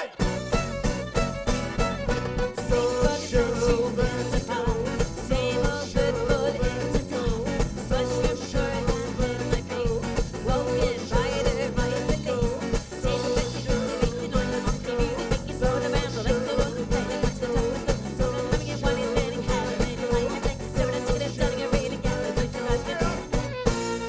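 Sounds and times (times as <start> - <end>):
fiddle melody: 0.0 - 12.4, 18.2 - 24.0
folk-rock band playing: 0.0 - 24.0.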